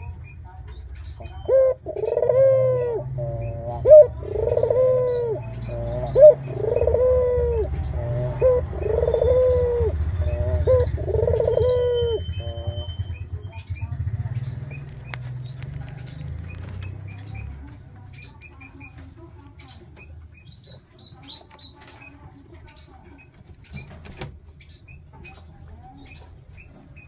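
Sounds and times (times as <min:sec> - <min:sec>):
dove cooing: 0:01.2 - 0:13.3.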